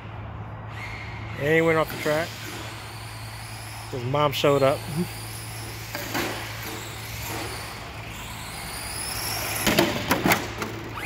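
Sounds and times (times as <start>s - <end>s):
toy truck electric motor whirring: 2.0s - 11.0s.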